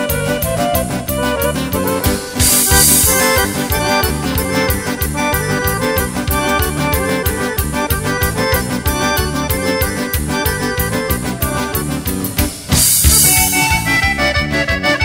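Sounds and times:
folk band playing: 0.0 - 15.0
cymbal crash: 2.2 - 4.3, 12.7 - 14.1.

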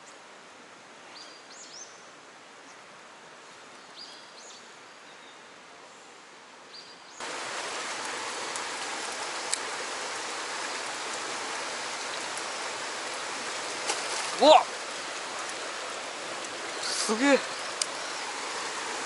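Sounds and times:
stream water rushing over rocks: 7.2 - 19.0.

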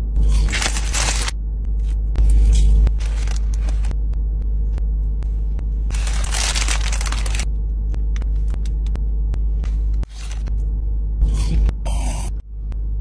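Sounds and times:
paper wrapper crinkling: 0.3 - 1.3, 3.0 - 3.9, 5.9 - 7.5, 10.1 - 10.5
low rumble inside a car: 1.4 - 13.0.

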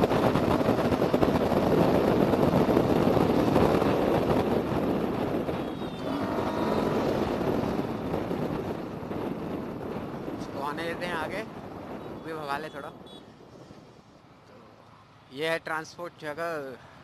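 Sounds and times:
motorcycle engine running at speed: 0.0 - 10.4
wind rush on microphone: 0.0 - 14.8.

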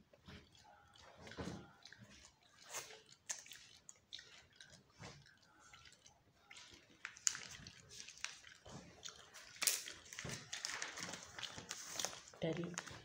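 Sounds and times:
clothing and packaging rustling: 7.0 - 13.0.

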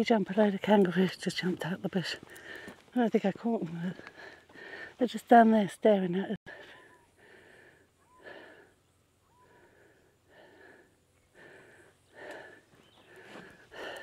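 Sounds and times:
faint breathing: 2.1 - 2.9, 3.9 - 5.0, 6.5 - 14.0.

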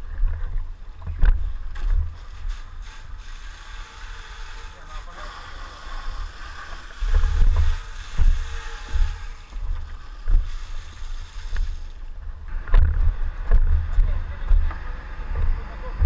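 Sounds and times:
microphone handling and wind noise: 0.0 - 2.5, 7.0 - 16.0.

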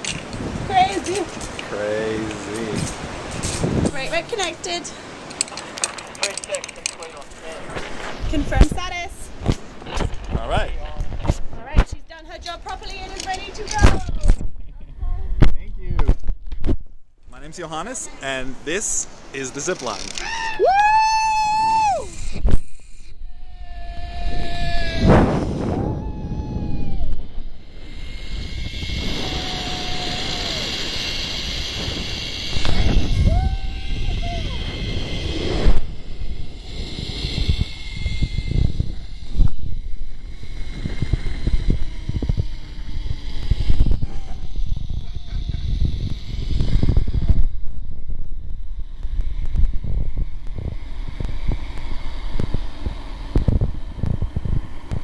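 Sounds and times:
zipline trolley on steel cable: 0.0 - 9.1, 12.4 - 14.3, 18.9 - 55.0
wind buffeting microphone: 0.0 - 16.9, 20.6 - 55.0
person yelling woo: 20.2 - 22.2, 25.8 - 27.2, 29.2 - 30.8, 33.2 - 34.6.

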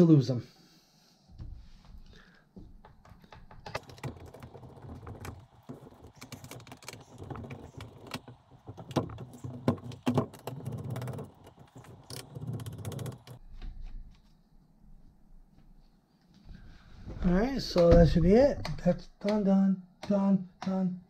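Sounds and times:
laptop clicking and knocking on table: 2.1 - 13.4
screwdriver turning small screws: 3.3 - 13.4.

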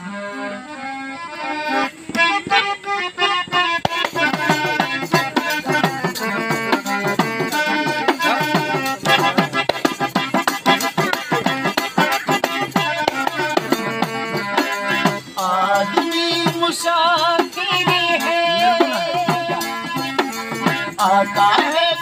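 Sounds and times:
harmonium melody: 0.0 - 22.0
frame drum beating: 3.5 - 15.2.

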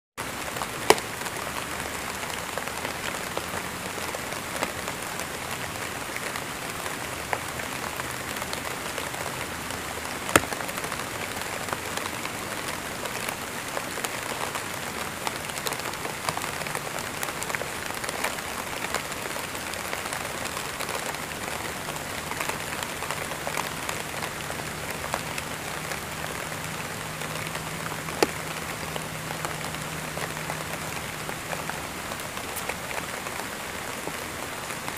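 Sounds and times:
rain pattering on a surface: 0.2 - 34.9.

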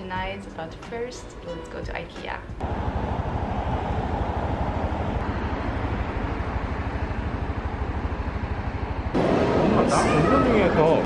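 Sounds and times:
low rumbling: 2.6 - 11.0
road traffic noise: 2.6 - 11.0.

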